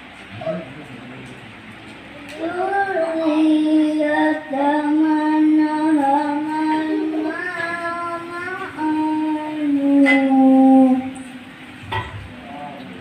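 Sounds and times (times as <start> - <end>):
boy reciting in melodic style: 2.1 - 11.5.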